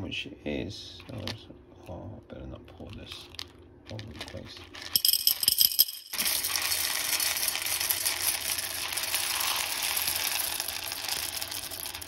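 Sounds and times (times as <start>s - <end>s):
coffee beans poured into glass jug: 3.9s - 12.0s.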